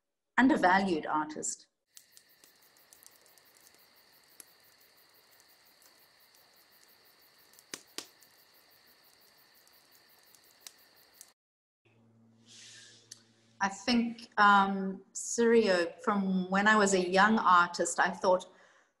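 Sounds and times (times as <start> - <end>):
small clicks: 1.9 - 11.4
rapid faint ticking: 2.0 - 11.3.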